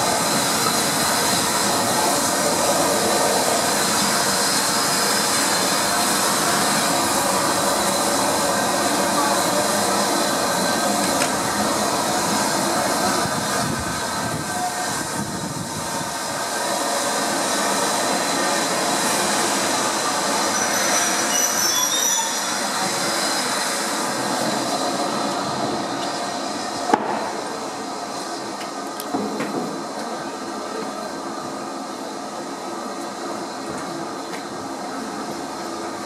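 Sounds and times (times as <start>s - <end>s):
train coaches rumbling on rails: 0.0s - 36.0s
steel wheels squealing: 20.0s - 23.5s.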